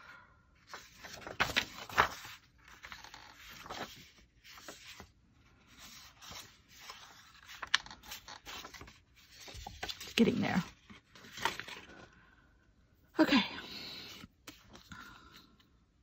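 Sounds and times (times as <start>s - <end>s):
paper pages rustling: 0.6s - 12.2s.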